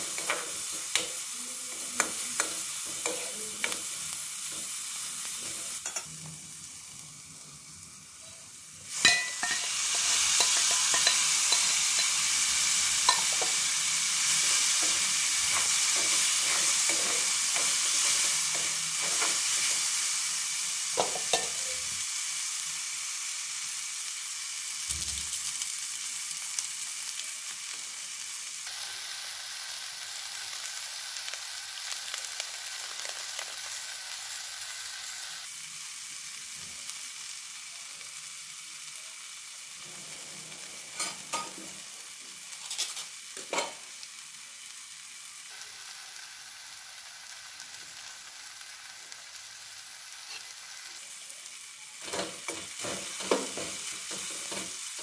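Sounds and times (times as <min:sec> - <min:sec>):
food sizzling in oil: 0:00.0 - 0:55.0
spatula scraping a pan: 0:09.1 - 0:19.9.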